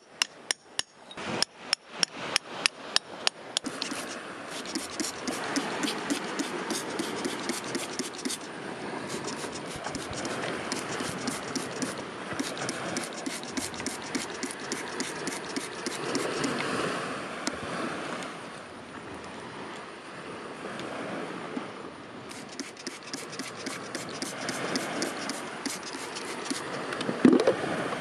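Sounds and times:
fingers scratching in gritty soil: 3.6s - 8.5s, 9.1s - 16.6s, 22.3s - 26.8s
grainy rustle of grit: 3.6s - 16.6s, 22.3s - 26.9s.

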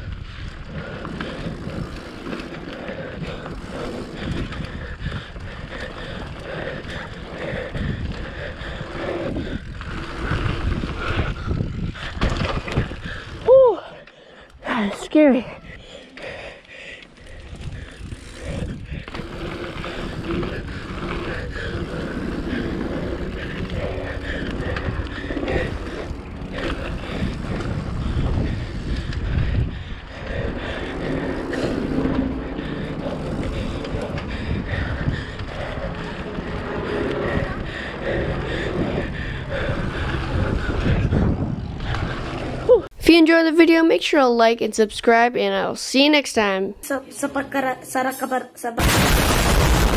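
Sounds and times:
bike knocking and rattling: 0.0s - 13.5s, 17.1s - 42.9s
bike tyres rolling over dirt: 0.0s - 13.9s, 16.4s - 42.9s.

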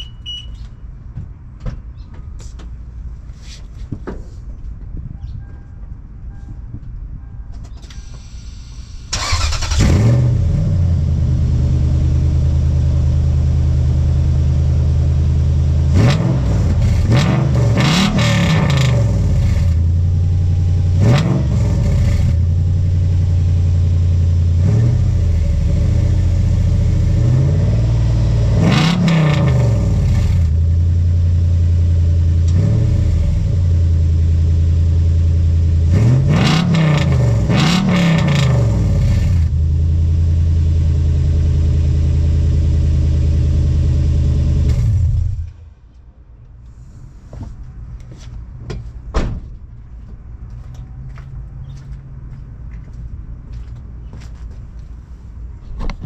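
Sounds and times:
engine starting and idling: 7.9s - 10.5s
engine revving: 9.1s - 12.9s, 15.8s - 19.8s, 20.9s - 22.5s, 24.4s - 30.6s, 32.2s - 33.8s, 35.7s - 39.6s.

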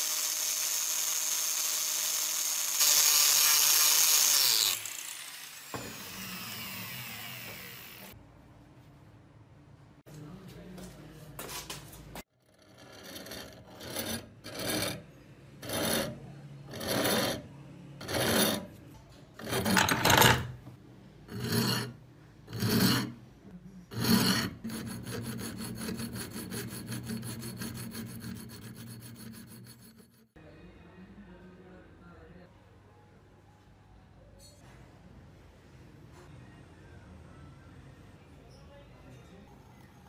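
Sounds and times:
metal file rasping on steel: 12.5s - 18.8s, 19.4s - 20.2s, 21.3s - 23.2s, 23.9s - 30.4s.

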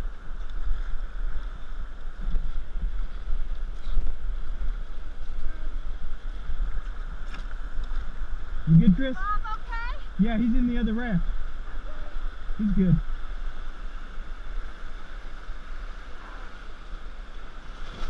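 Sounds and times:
wind on microphone: 0.0s - 9.0s
river current rushing: 0.0s - 18.0s.

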